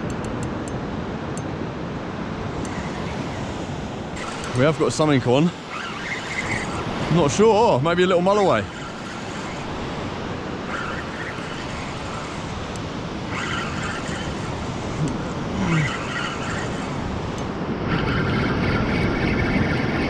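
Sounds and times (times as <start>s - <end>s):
wind: 0.0s - 20.0s
surf: 2.3s - 20.0s
fishing reel winding: 2.6s - 17.5s.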